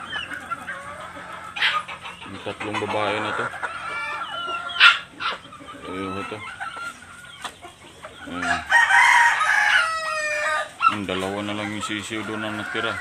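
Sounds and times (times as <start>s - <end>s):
chickens clucking: 0.0s - 13.0s
loud chicken squawk: 0.0s - 13.0s
rooster crowing: 8.3s - 10.8s.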